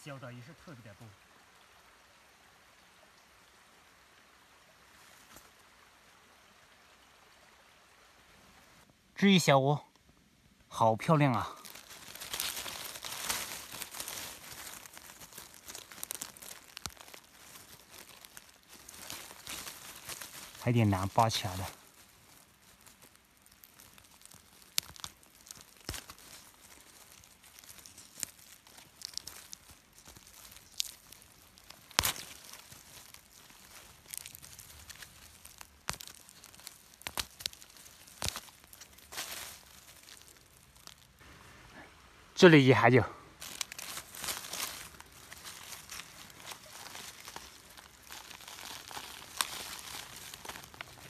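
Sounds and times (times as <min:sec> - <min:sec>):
faint outdoor hiss: 0:00.0 - 0:51.0
leaf litter rustling: 0:10.7 - 0:51.0
stalks snapping: 0:11.5 - 0:41.2, 0:43.4 - 0:51.0.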